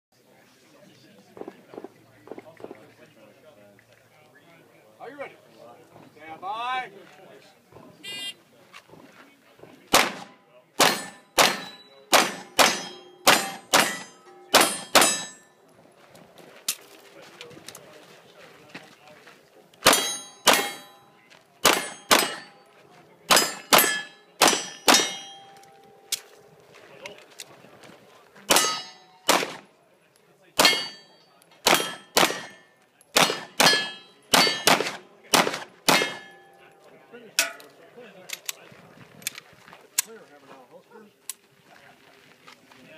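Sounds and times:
pistol shots: 9.9 - 15.4, 19.8 - 20.9, 21.6 - 22.5, 23.3 - 25.3, 28.5 - 29.7, 30.6 - 31.0, 31.6 - 36.4
steel target plate ringing: 10.8 - 15.6, 19.9 - 21.1, 21.7 - 22.6, 23.3 - 26.1, 28.5 - 29.3, 30.6 - 34.8, 35.9 - 36.6.

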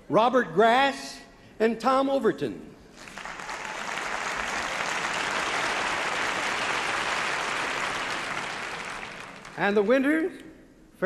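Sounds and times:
audience applauding: 3.0 - 9.9.

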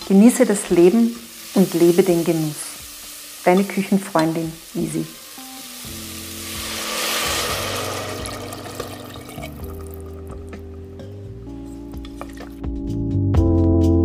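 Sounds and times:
frying hiss: 0.0 - 12.7
music of held chords: 0.0 - 14.0.

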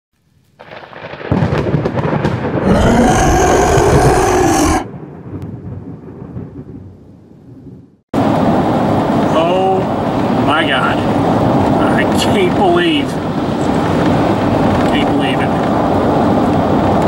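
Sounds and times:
thunder rumbling: 0.6 - 7.0
pitched wavering cry: 2.7 - 4.9.

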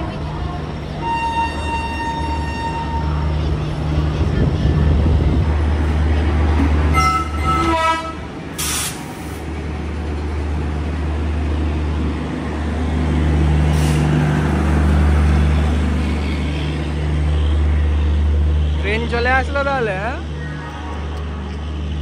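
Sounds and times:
train rumbling: 0.0 - 22.0
air brake hiss: 8.6 - 9.4, 13.7 - 14.1.

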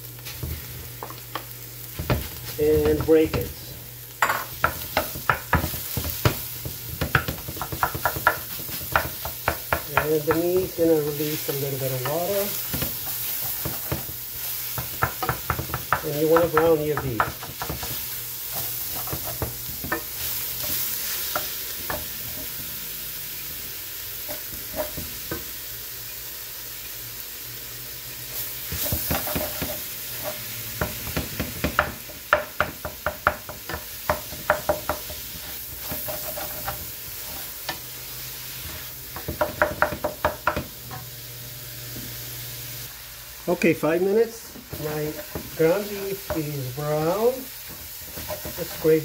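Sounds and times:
meat sizzling in a pan: 0.0 - 49.0
wooden spatula scraping a pan: 28.4 - 30.5, 33.7 - 39.9, 44.5 - 49.0.

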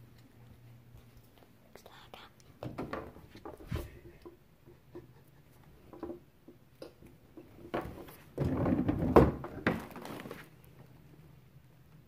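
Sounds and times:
rustling and knocking: 2.6 - 5.2, 5.8 - 10.5.

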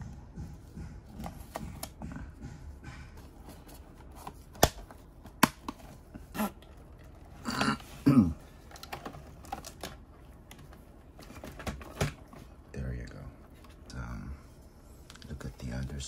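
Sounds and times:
low grunt-like sound: 7.4 - 8.4.

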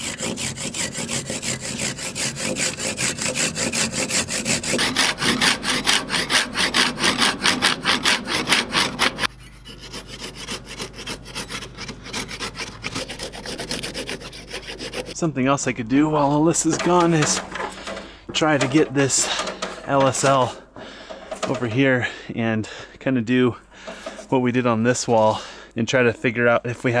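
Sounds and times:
hand saw cutting wood: 0.0 - 15.2.

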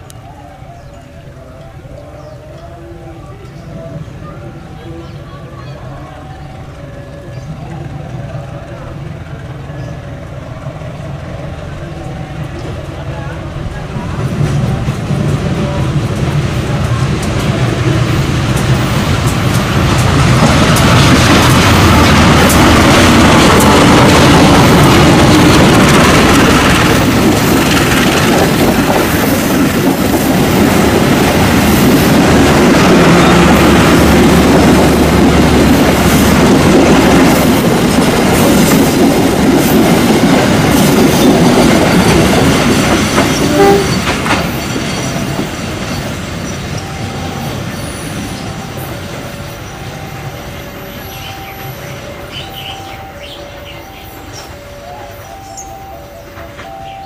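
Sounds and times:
train wheels clattering over rail joints: 14.0 - 49.3.

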